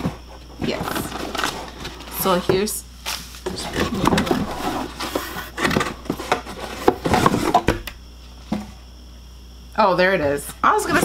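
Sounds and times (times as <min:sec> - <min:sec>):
cardboard packaging rustling: 0:00.7 - 0:07.7.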